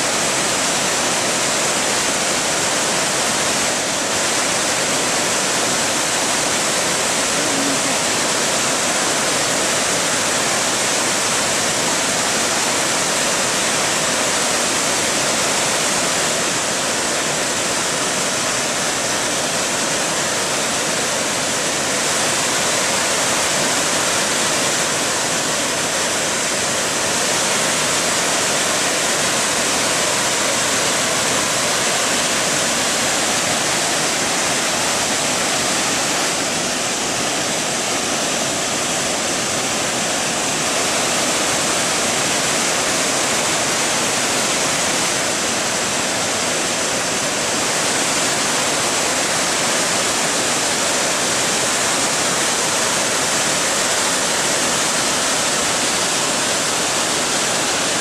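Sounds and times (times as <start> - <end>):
waterfall roaring: 0.0 - 58.0.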